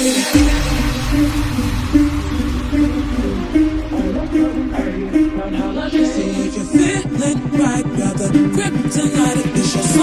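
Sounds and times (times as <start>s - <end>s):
heavy dubstep music: 0.0s - 10.0s.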